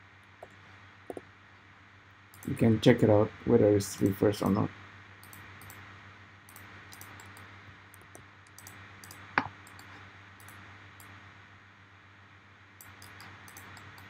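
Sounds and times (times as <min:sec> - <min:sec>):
low hum: 0:00.0 - 0:14.0
mouse and keyboard clicks: 0:05.2 - 0:05.8, 0:06.5 - 0:11.1, 0:12.8 - 0:14.0.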